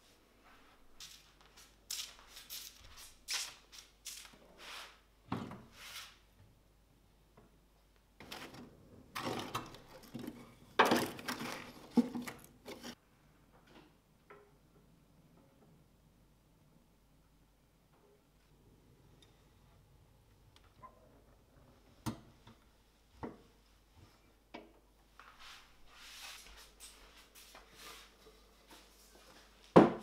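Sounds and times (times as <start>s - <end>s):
logs scraping and knocking: 8.2s - 13.0s.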